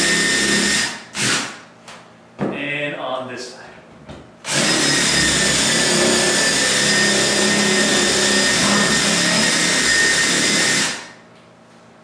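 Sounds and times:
impact wrench whining: 0.0s - 1.6s, 4.4s - 11.2s.

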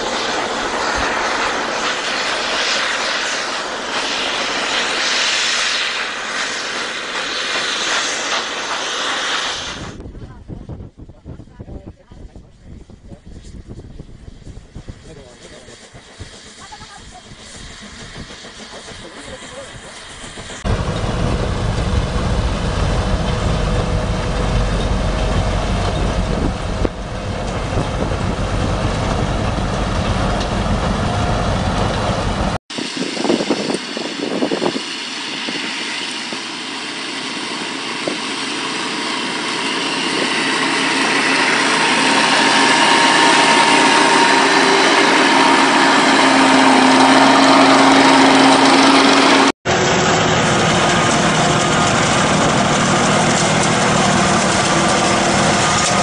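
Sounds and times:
rotary snowplow rumbling: 0.0s - 56.0s
snow blower engine: 15.0s - 32.6s, 36.2s - 56.0s.

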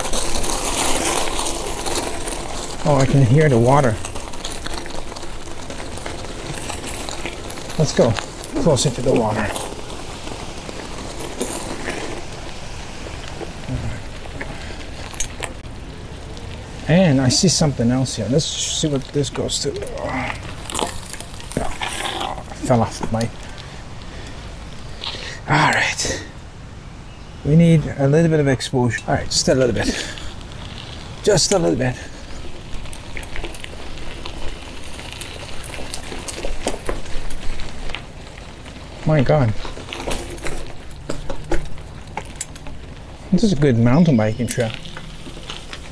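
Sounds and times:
bicycle rolling on dirt: 0.0s - 45.9s
sharp clicks and rattles: 29.0s - 45.9s.

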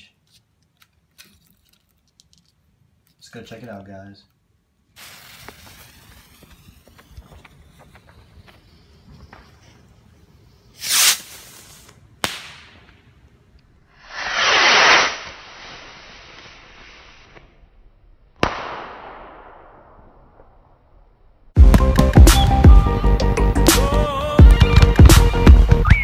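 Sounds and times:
bottle rocket whooshing launch: 5.0s - 9.0s, 10.7s - 11.9s, 14.0s - 17.4s.

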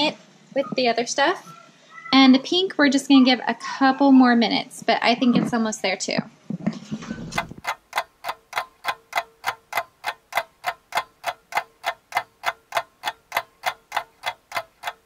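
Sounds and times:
clock ticking: 7.2s - 15.0s.

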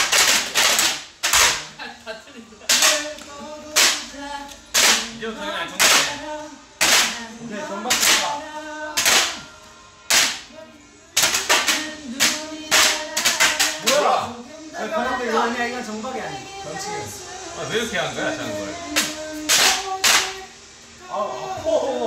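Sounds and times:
paper clapper fans cracking: 0.0s - 1.7s, 2.7s - 4.1s, 4.7s - 5.2s, 5.8s - 7.3s, 7.9s - 9.4s, 10.1s - 10.5s, 11.2s - 14.2s, 18.8s - 20.5s
music: 0.0s - 22.0s.

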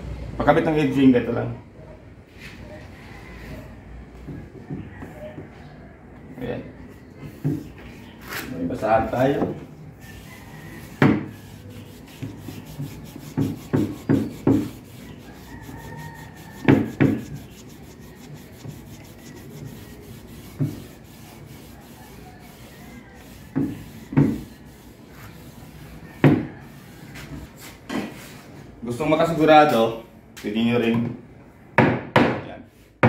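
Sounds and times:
cloth rag rubbing on edge banding: 10.0s - 26.0s.

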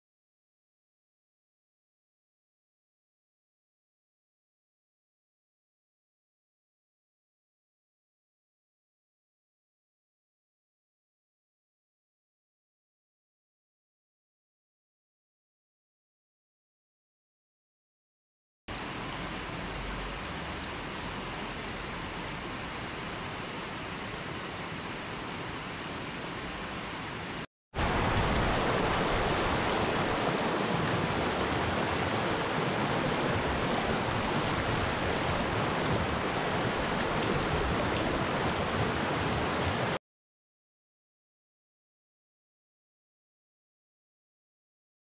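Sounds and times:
river rushing over rocks: 18.7s - 40.0s.

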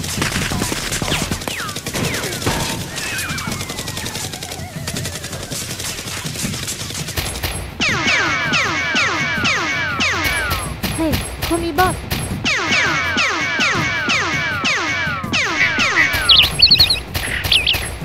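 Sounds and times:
gunfire sound effects: 0.0s - 18.0s
repeating falling swoops: 12.4s - 18.0s.

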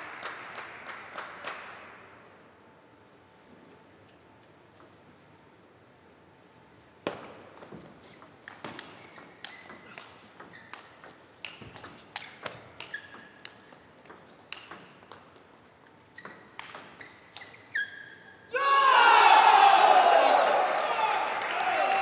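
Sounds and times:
ball clicking off rackets: 7.0s - 17.8s
ball bouncing on table: 7.1s - 15.4s, 16.2s - 17.5s.

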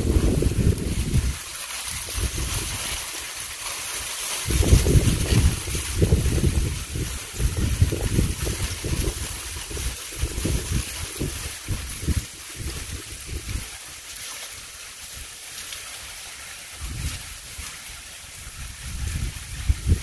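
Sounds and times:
wind buffeting microphone: 0.0s - 2.8s, 4.4s - 13.8s, 16.8s - 17.6s, 18.3s - 20.0s.

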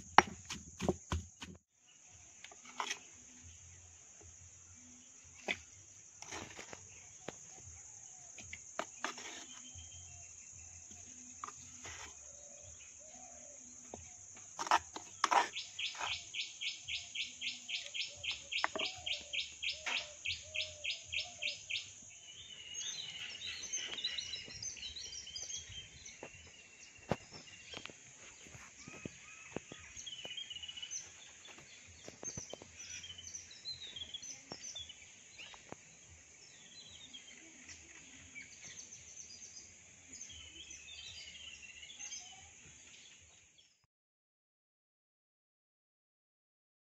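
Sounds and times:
birds chirping: 0.0s - 43.8s
spoon scraping stone mortar: 2.5s - 3.2s, 5.4s - 7.0s, 8.8s - 10.0s, 11.3s - 12.3s, 14.5s - 16.3s, 18.3s - 20.1s.

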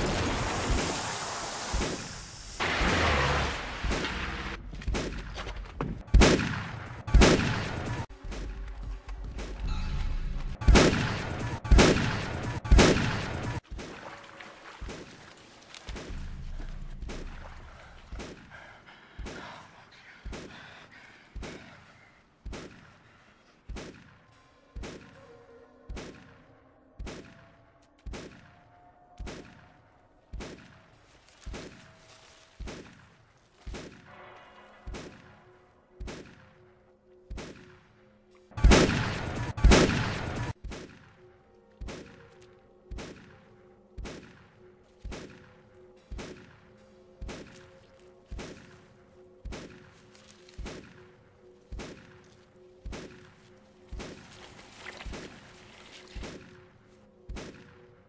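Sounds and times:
shotgun blasts: 6.1s - 8.1s, 38.6s - 41.1s.

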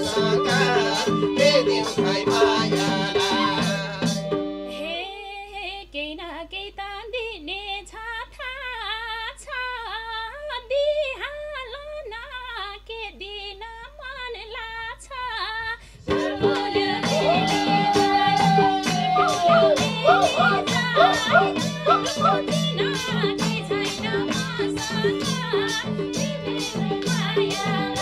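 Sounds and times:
folk band playing: 0.0s - 4.8s, 16.1s - 28.0s
woman singing: 0.0s - 28.0s.

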